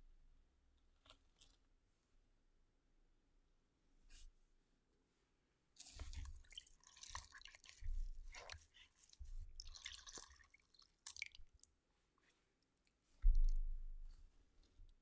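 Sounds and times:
wet sponge squishing: 0:05.8 - 0:13.5.

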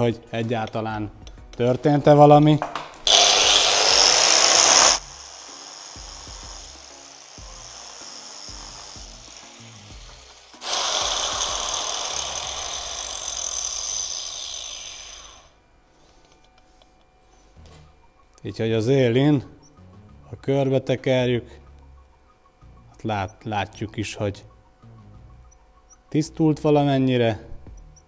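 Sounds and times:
angle grinder running and spinning down: 0:03.1 - 0:15.6.

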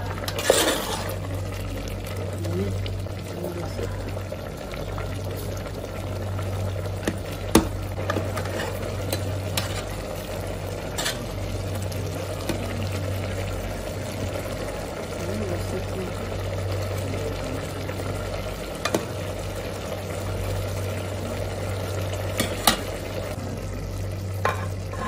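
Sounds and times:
steady low hum: 0:00.0 - 0:25.0
spoon stirring rice: 0:00.2 - 0:01.2, 0:07.0 - 0:10.0, 0:10.9 - 0:11.4.

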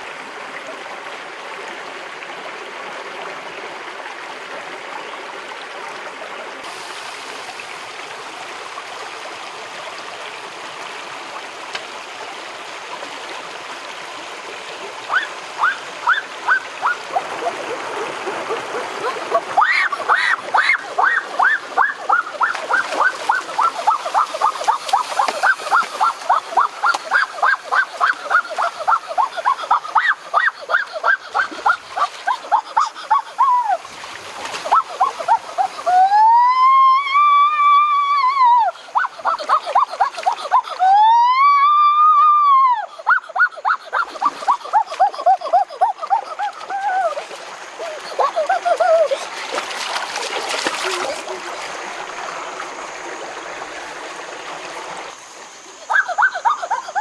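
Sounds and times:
water splashing in rocky stream: 0:15.0 - 0:36.0, 0:44.0 - 0:56.8
wavering vocal cry: 0:15.1 - 0:33.8, 0:34.6 - 0:49.4, 0:55.9 - 0:57.0.

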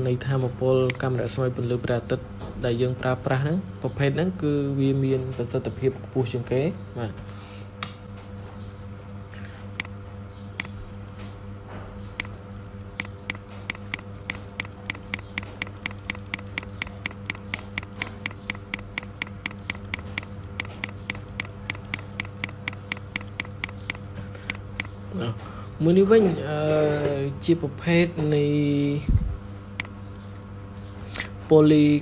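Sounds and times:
steady low hum: 0:00.0 - 0:32.0
computer mouse clicking: 0:08.7 - 0:09.9, 0:11.9 - 0:25.0.

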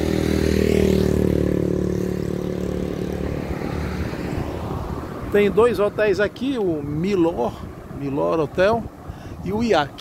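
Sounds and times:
vehicle engine passing by: 0:00.0 - 0:06.3.

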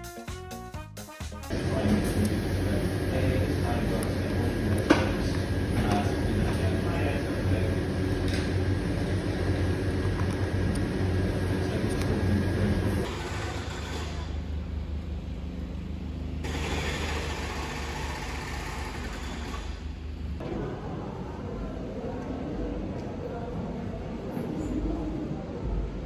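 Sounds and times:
traffic rumble: 0:01.5 - 0:16.5
low background hum: 0:01.5 - 0:16.6.

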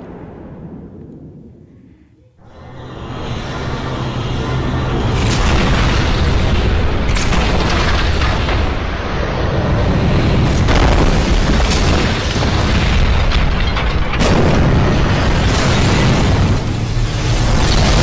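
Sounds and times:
continuous low rumble: 0:00.0 - 0:18.0
heavy explosion blasts: 0:04.7 - 0:18.0.

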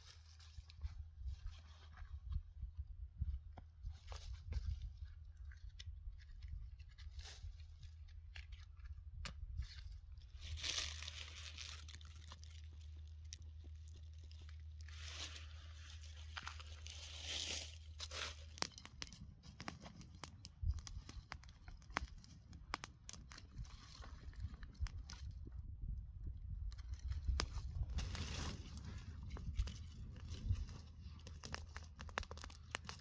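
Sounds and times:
fire crackling in dry leaves: 0:10.3 - 0:25.6, 0:26.5 - 0:33.0.

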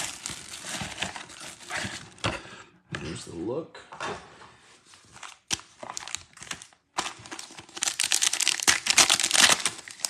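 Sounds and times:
foil wrapper crinkling and tearing: 0:00.0 - 0:01.9, 0:05.2 - 0:10.0.

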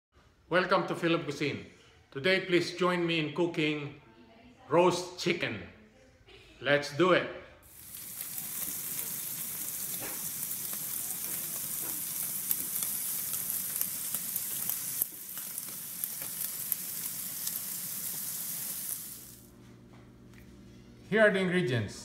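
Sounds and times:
sizzling hiss with crackles: 0:07.7 - 0:19.6.

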